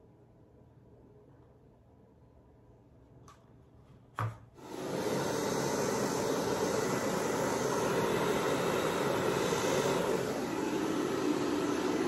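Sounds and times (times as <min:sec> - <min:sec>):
hairdryer running: 0:04.6 - 0:12.0.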